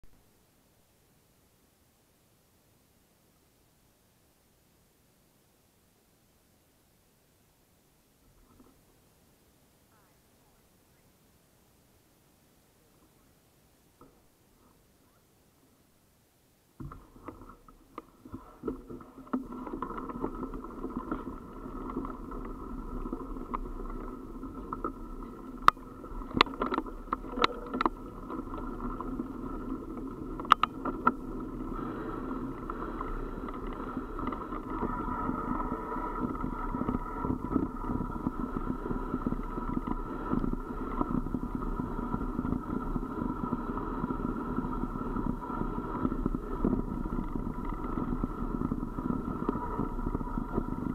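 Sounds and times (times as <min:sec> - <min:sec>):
wheels rolling on gravel: 0:16.9 - 0:50.9.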